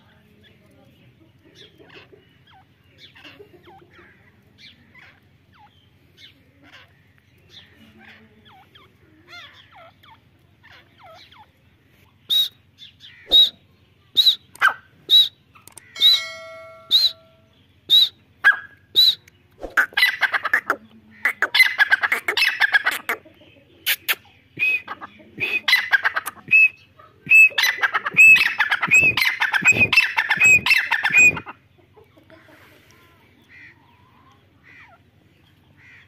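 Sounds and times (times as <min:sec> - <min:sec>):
francolin calling: 0:12.2 - 0:23.2, 0:23.8 - 0:31.6.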